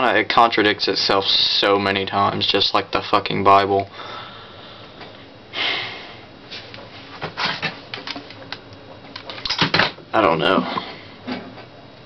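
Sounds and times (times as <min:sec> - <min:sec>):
person breathing out hard: 0:03.9 - 0:06.3.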